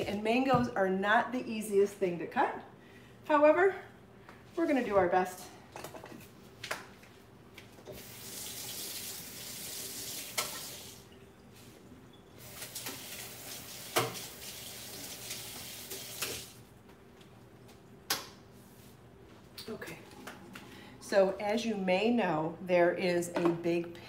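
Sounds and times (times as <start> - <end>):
water splashing into sink basin: 7.9 - 11.0, 12.4 - 16.6.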